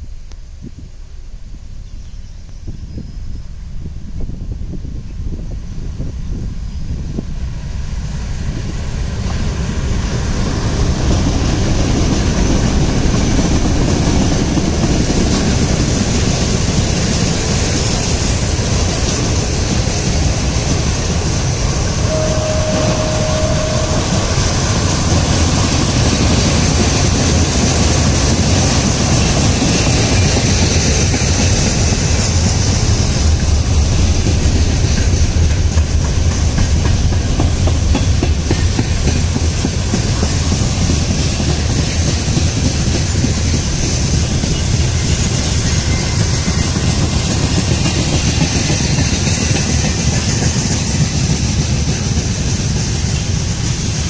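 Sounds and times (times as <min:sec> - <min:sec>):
freight train rumbling past: 0:02.1 - 0:54.0
diesel locomotives passing: 0:05.2 - 0:54.0
steady high tone: 0:21.9 - 0:26.1.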